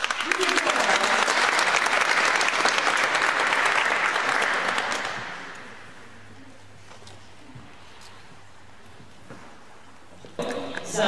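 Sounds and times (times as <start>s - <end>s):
audience applauding: 0.0s - 5.9s.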